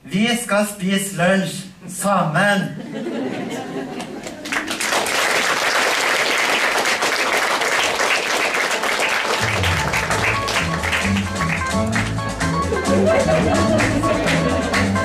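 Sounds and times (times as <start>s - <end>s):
audience applauding: 3.9s - 15.0s
music: 9.2s - 15.0s.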